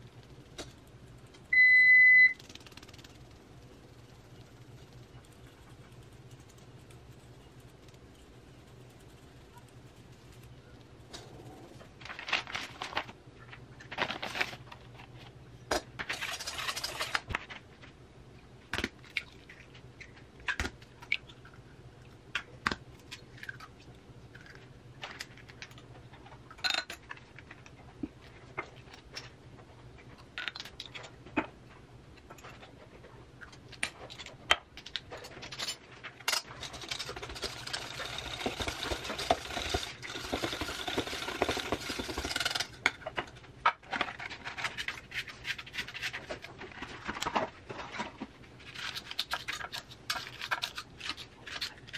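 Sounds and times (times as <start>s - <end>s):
whisk beating batter in metal bowl: 36.6s - 42.6s.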